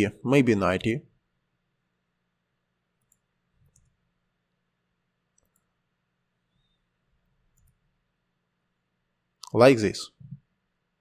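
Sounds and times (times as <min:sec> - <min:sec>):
computer mouse clicks: 0:03.0 - 0:04.0, 0:05.3 - 0:05.8, 0:07.5 - 0:07.8.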